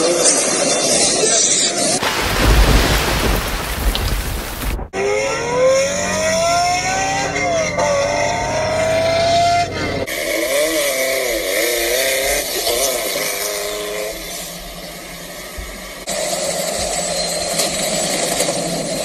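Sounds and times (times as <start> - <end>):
rushing water: 2.0 - 5.0
car engine accelerating: 5.0 - 16.1.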